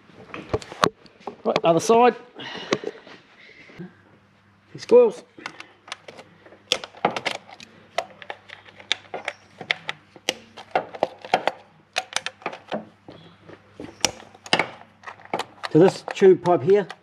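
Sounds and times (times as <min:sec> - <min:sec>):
plastic and metal clicks: 0:05.4 - 0:12.8, 0:14.0 - 0:17.0.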